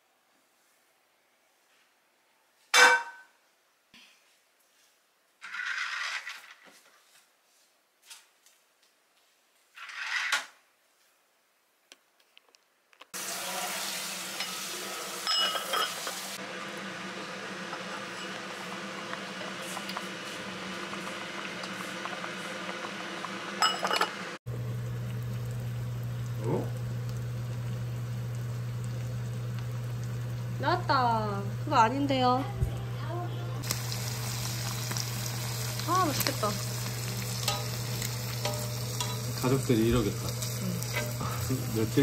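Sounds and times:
dishes and utensils clattering: 15.2s - 16.2s, 23.6s - 24.2s, 37.4s - 39.6s.

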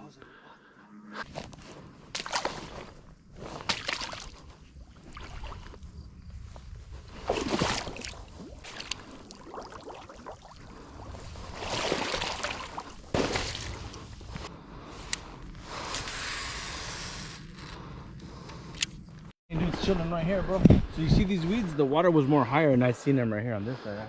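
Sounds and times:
grass and waders brushing: 1.2s - 14.5s
footsteps splashing in shallow water: 2.1s - 5.8s, 7.2s - 10.7s, 11.4s - 13.9s.

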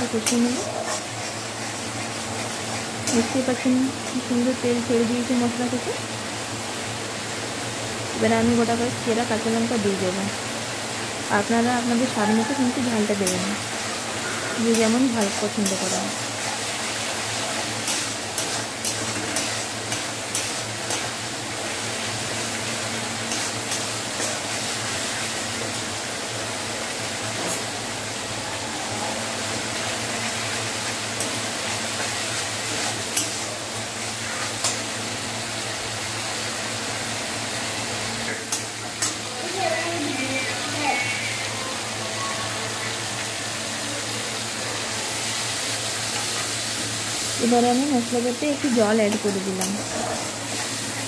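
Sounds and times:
paste sizzling in oil: 0.0s - 51.0s
metal spatula scraping a pan: 14.2s - 21.2s.

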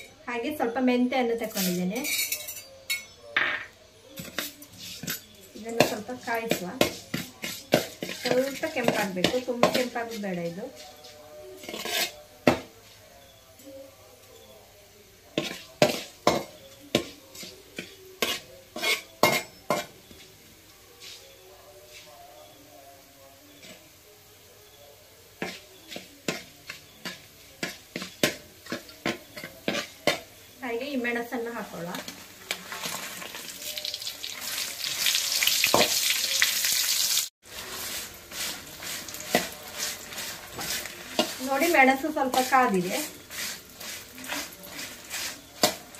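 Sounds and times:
chillies sizzling in hot oil: 0.0s - 2.6s, 3.9s - 45.9s
metal spatula scraping a pan: 1.4s - 2.8s, 4.1s - 12.7s, 15.3s - 20.0s, 25.3s - 30.6s, 37.4s - 45.9s.

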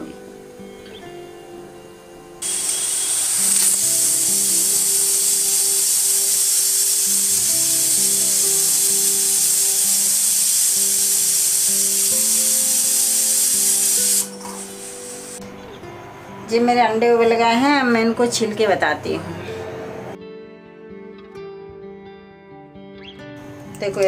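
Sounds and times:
background music: 0.0s - 24.0s
pressure cooker whistling: 2.4s - 15.4s.

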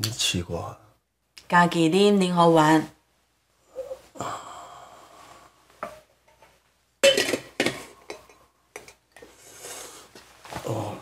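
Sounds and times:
spoon clinking against ceramic bowl: 7.0s - 9.0s.

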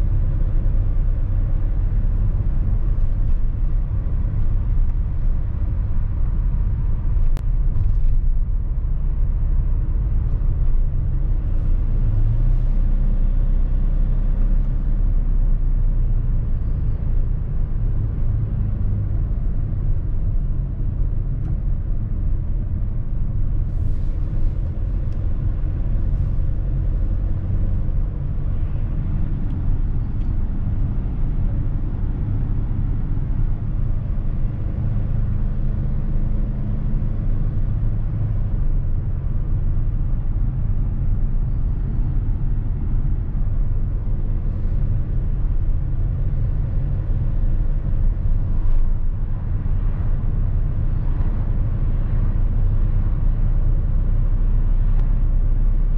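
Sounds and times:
van engine and tyre rumble: 0.0s - 55.9s.

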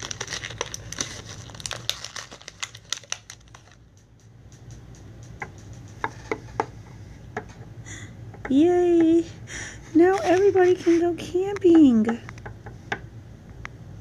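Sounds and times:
plastic packaging crinkling: 0.0s - 4.2s.

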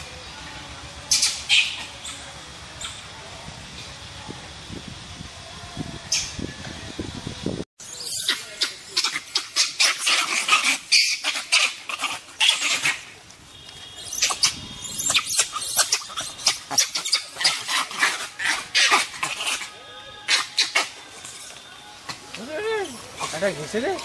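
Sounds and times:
animal chattering calls: 7.8s - 13.1s, 14.0s - 19.7s, 20.3s - 21.0s.

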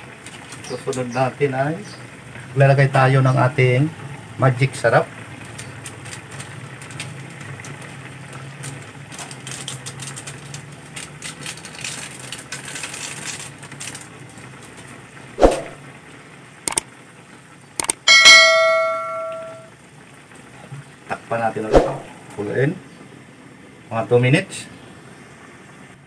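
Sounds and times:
pan simmering with bubbling hiss: 0.0s - 26.0s
sharp clicks: 17.8s - 18.0s
bell-like ding: 18.1s - 19.7s.

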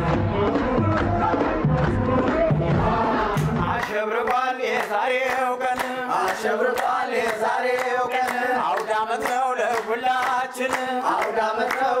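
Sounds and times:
men singing together: 0.0s - 12.0s
sharp handclaps: 3.4s - 12.0s.

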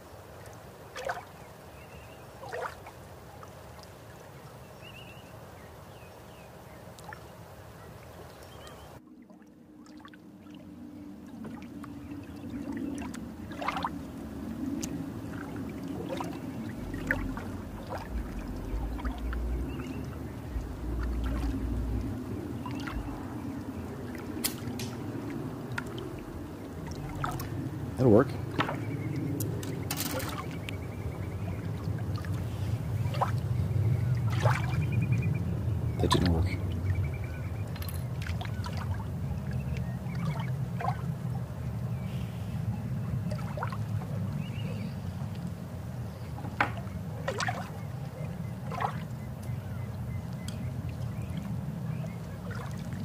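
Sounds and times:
low rumbling noise: 8.9s - 47.2s
steady background noise: 8.9s - 53.0s.

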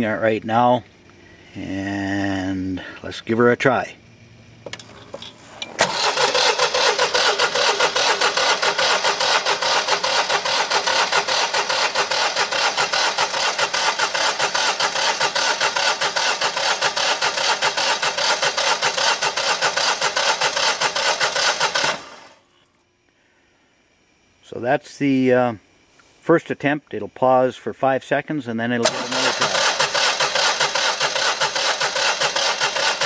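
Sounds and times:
generator starter cranking: 4.6s - 22.4s, 28.8s - 33.0s.

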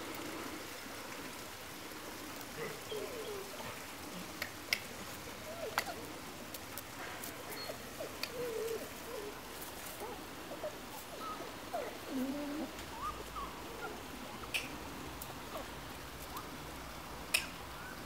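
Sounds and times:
puppies squeaking and whimpering: 7.5s - 9.4s, 10.0s - 14.6s.

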